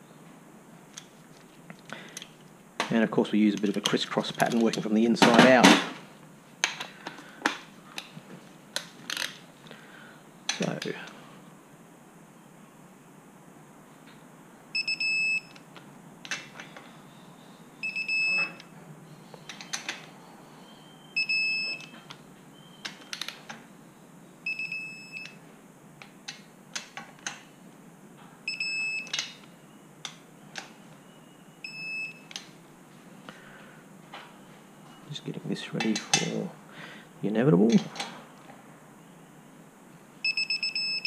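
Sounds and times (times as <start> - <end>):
torque wrench beeping: 40.2 - 41.0.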